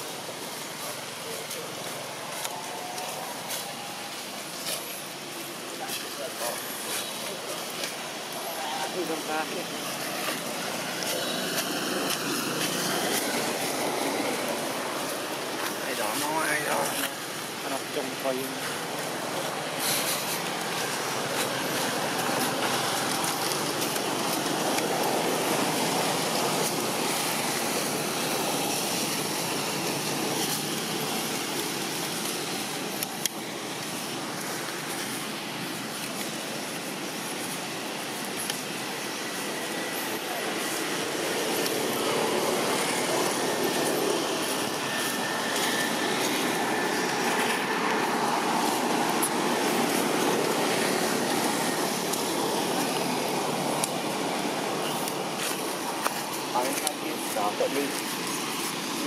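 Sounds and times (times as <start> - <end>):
steady rushing ambient noise: 0.0 - 59.0.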